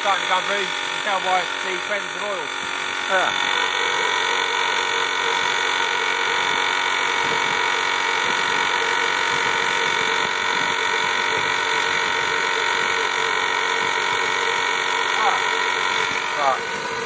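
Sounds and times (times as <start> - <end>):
burner air hissing: 15.2 - 17.0.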